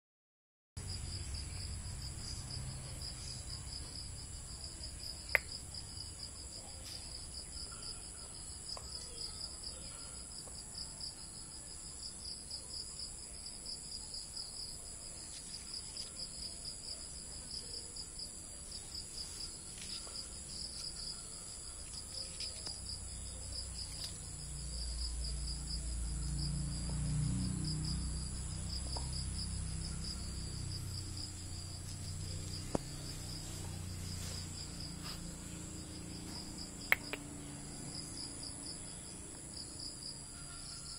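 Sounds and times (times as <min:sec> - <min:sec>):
insects chirring: 0:13.3 - 0:40.9
sharp click: 0:36.9 - 0:37.3.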